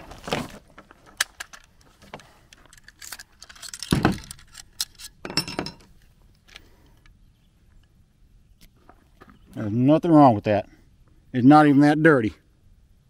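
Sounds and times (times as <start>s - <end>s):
rifle parts clicking and clinking: 0.8s - 7.2s.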